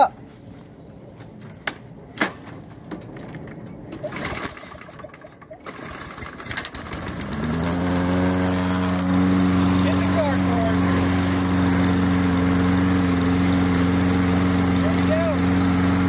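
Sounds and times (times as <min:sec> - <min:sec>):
lawn mower engine idling: 0:04.0 - 0:16.0.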